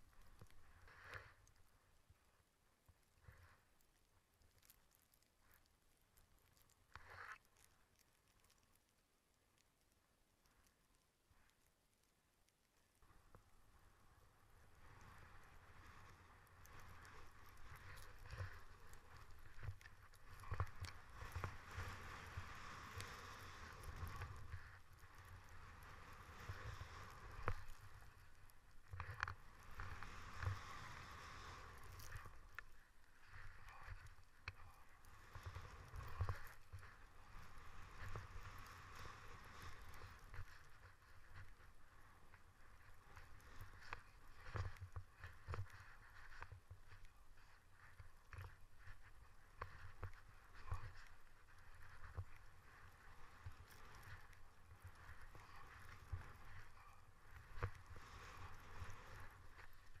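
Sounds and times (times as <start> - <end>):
faint clicks: 0.0 - 60.0
skis hissing through snow: 20.4 - 28.2, 29.4 - 32.5, 35.0 - 41.2, 57.6 - 60.0.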